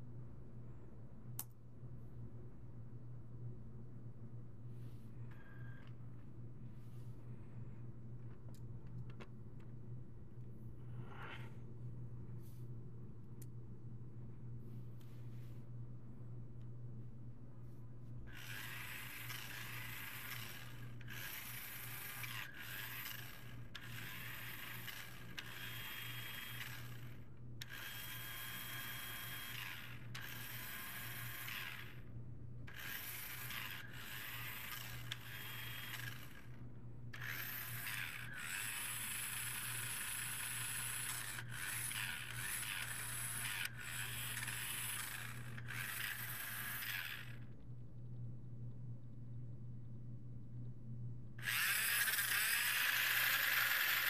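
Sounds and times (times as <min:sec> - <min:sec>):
toy truck electric motors whirring: 0:18.3 - 0:32.1, 0:32.7 - 0:47.5, 0:51.4 - 0:54.0.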